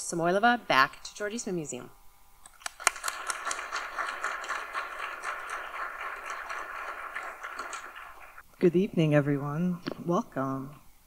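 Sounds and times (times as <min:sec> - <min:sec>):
audience applauding: 0:02.7 - 0:08.4.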